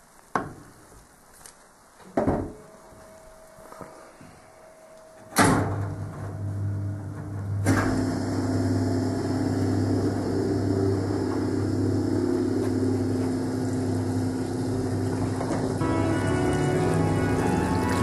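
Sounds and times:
drain pump humming: 5.4 - 18.0
washing machine motor humming: 5.7 - 18.0.

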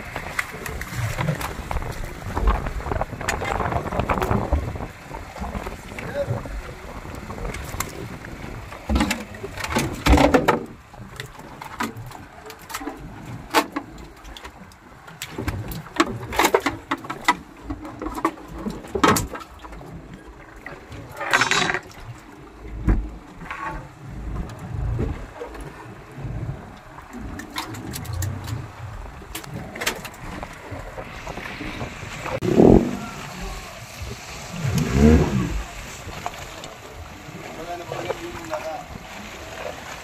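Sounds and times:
rough scraping: 21.2 - 21.9, 32.3 - 36.4.

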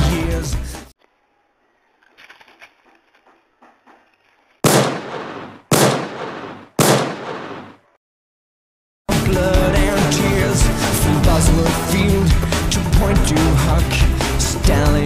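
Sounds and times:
loud gunshots with echo: 4.6 - 7.8.

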